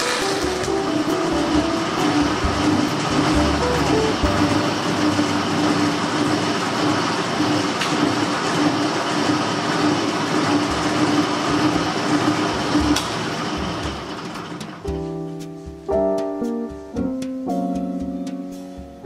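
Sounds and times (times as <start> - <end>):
band saw cutting fiberglass: 0.0 - 14.8.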